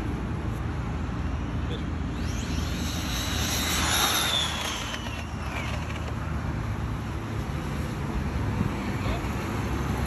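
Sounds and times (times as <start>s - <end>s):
rc car motor whining: 2.1s - 6.5s.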